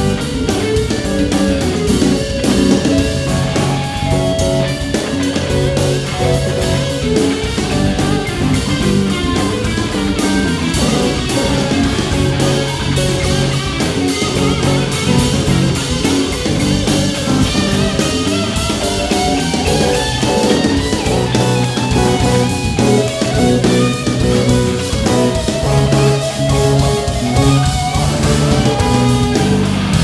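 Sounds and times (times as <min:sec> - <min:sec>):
electric guitar lines: 0:00.0 - 0:30.0
live band playing: 0:00.0 - 0:30.0.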